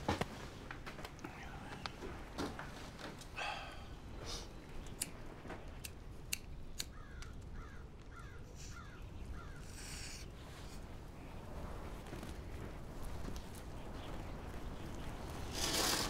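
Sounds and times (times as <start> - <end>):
breathy puffs: 3.3 - 4.6
bird calls: 3.4 - 16.0.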